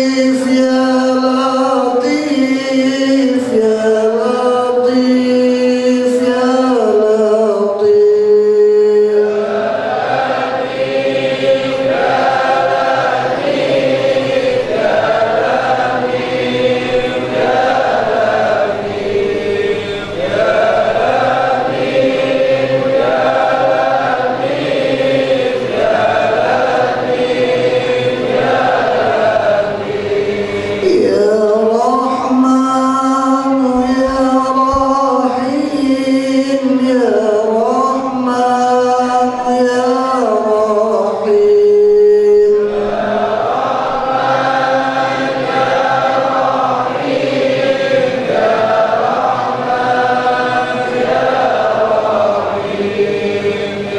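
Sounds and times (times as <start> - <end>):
men chanting in unison: 0.0 - 53.9.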